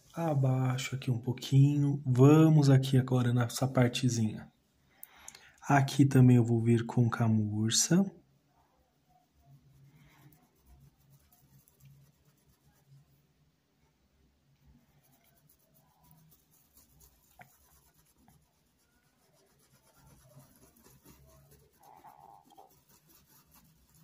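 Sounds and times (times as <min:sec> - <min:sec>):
paintbrush scratching on cloth: 0:09.1 - 0:13.4, 0:14.6 - 0:24.0.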